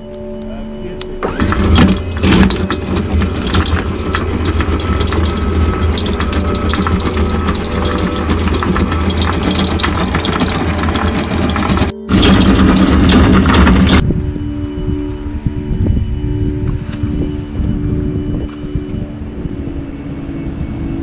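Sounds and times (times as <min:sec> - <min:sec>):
windlass motor humming: 0:01.1 - 0:21.0
anchor chain rattling: 0:01.2 - 0:14.0.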